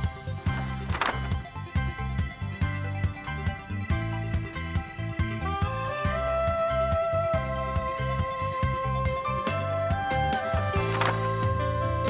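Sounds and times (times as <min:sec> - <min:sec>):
instrumental music with low beat: 0:00.0 - 0:12.0.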